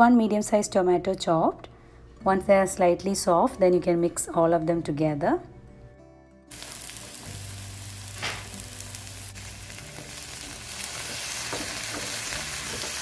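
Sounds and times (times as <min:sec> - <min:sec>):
vegetables sizzling in oil: 0:06.5 - 0:13.0
spatula scraping a pan: 0:10.8 - 0:13.0.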